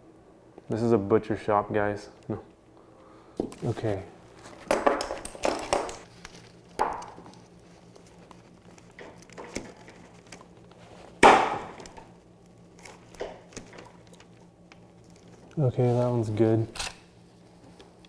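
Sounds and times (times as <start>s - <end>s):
wooden boards knocking: 4.7s - 6.0s.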